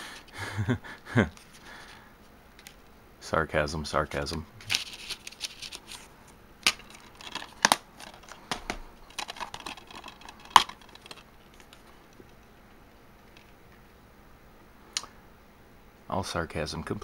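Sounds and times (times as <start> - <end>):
paper insert rustling: 4.0 - 11.9.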